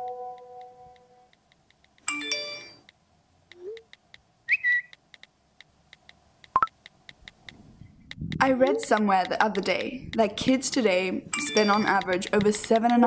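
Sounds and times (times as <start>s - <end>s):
steady ticking: 0.0s - 13.0s
held chime: 2.1s - 2.8s, 11.3s - 12.0s.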